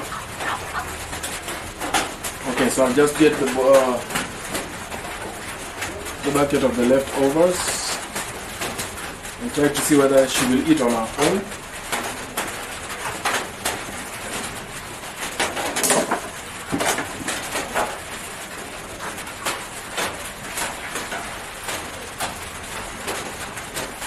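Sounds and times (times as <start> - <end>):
hen pecking at food: 0.0 - 3.6.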